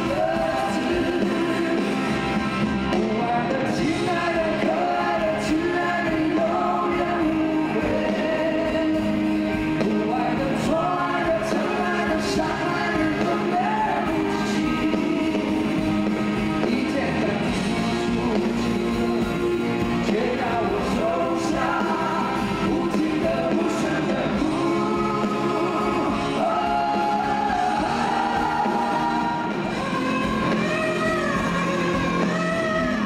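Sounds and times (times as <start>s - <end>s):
two men singing: 0.0s - 2.2s, 2.9s - 33.0s
band backing: 0.0s - 33.0s
electric guitar: 0.0s - 33.0s.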